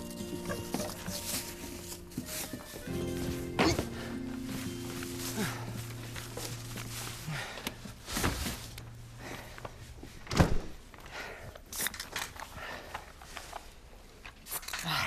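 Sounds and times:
footsteps: 0.0s - 11.2s
rustling: 0.0s - 14.9s.

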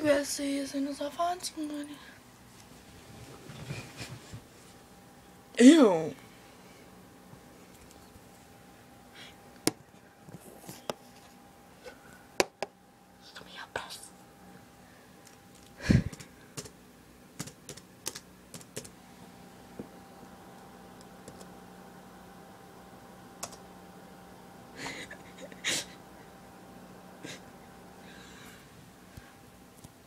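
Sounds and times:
laptop keyboard typing: 16.1s - 16.8s, 17.4s - 19.0s, 21.2s - 21.5s, 23.4s - 23.6s.

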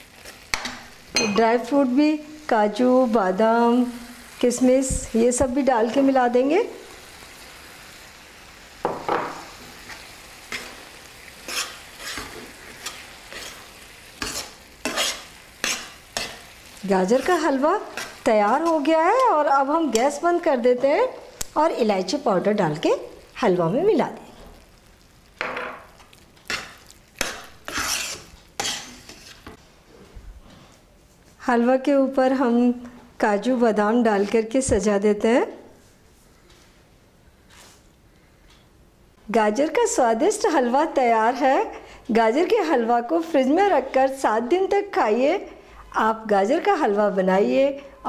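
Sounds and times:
soft sizzle: 0.0s - 48.0s
spoon scraping a pan: 9.5s - 20.2s, 25.6s - 29.6s.

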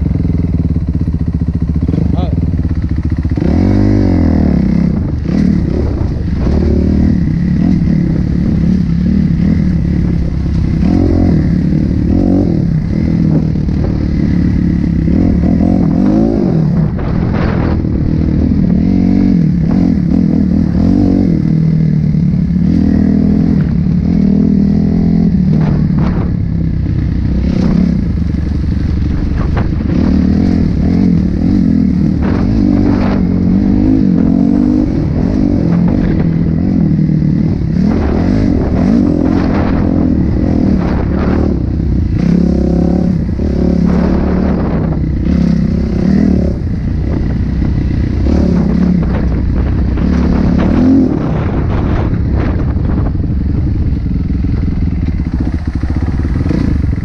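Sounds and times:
dirt bike engine revving: 0.0s - 57.0s.

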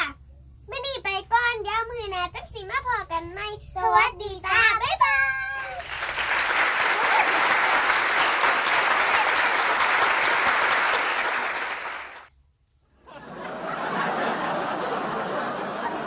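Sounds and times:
applause: 5.7s - 12.3s.

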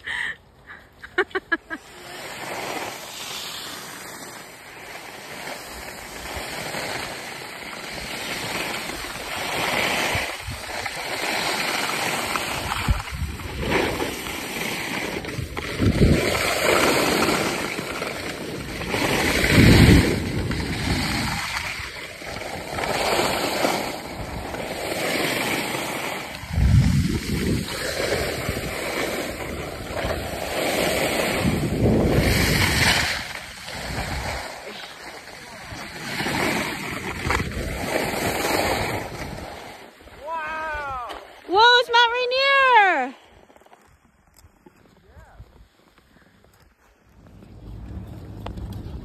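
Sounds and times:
skis scraping over snow: 0.1s - 49.0s
wind on microphone: 8.9s - 11.1s, 12.3s - 14.3s, 15.1s - 17.8s, 18.6s - 24.8s, 26.2s - 34.7s, 35.6s - 40.8s, 47.2s - 49.0s.

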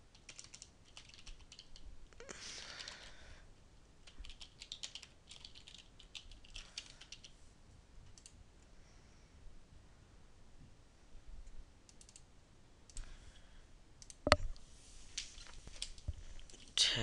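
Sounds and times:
typing on computer keyboard: 0.1s - 1.8s, 2.6s - 3.1s, 4.0s - 7.3s, 11.9s - 12.2s.

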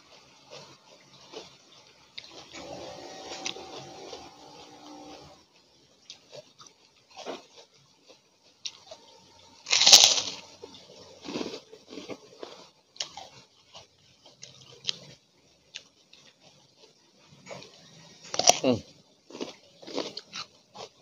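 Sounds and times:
chewing with crackling crunches: 0.0s - 21.0s
crunching bite: 9.7s - 10.5s, 18.3s - 18.7s.

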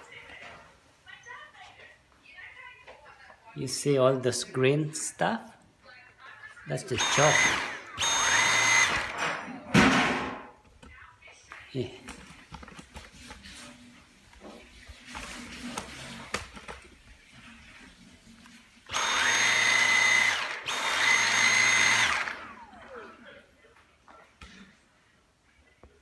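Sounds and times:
vacuum motor whining: 7.0s - 9.4s, 18.9s - 23.0s.

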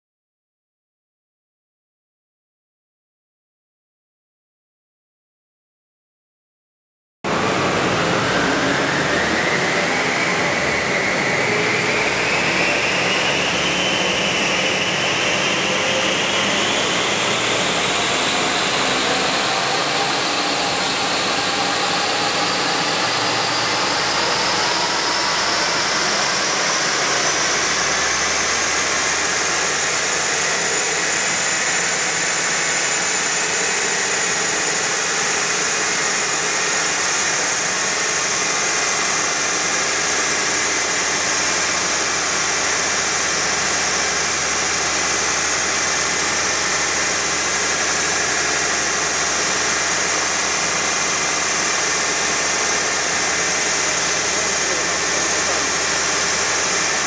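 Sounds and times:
car whine on dynamometer: 7.3s - 57.0s
large cooling fan rushing: 7.3s - 57.0s.

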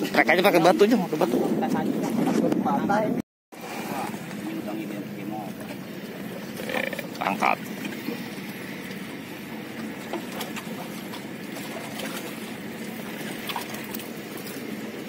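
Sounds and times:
harbour noise: 0.0s - 15.0s
distant boat engine drone: 3.0s - 15.0s.

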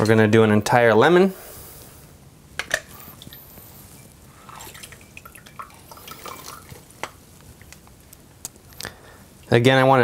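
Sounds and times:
juice dripping into jar: 4.4s - 8.9s.

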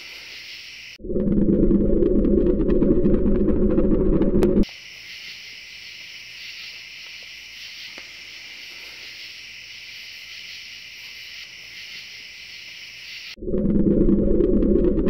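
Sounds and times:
night insects chorus: 0.0s - 1.0s, 4.6s - 13.4s.

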